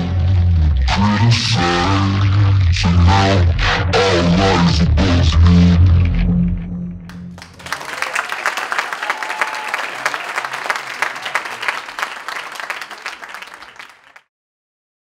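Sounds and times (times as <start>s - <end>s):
music: 0.0s - 7.4s
audience applauding: 7.3s - 14.3s.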